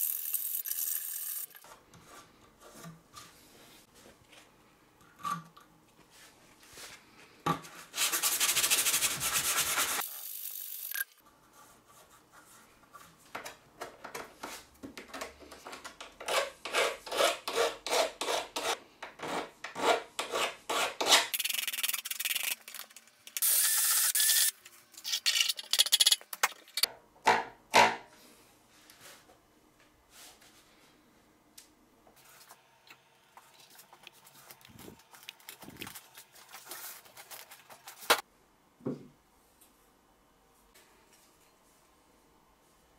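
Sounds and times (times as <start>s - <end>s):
sandpaper sponge rubbing metal: 8.0s - 10.0s
faint handling sounds: 33.3s - 38.2s.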